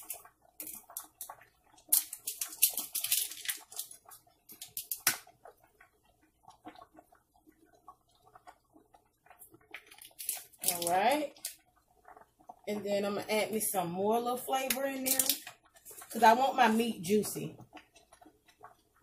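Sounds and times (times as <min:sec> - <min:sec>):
spice containers rattling: 0:01.9 - 0:05.1, 0:09.9 - 0:11.6, 0:15.0 - 0:16.2.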